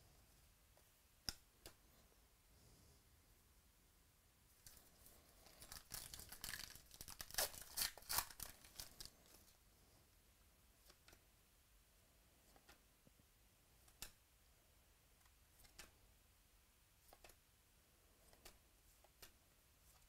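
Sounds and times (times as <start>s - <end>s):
plastic wrapper torn and crinkled: 5.4s - 9.3s.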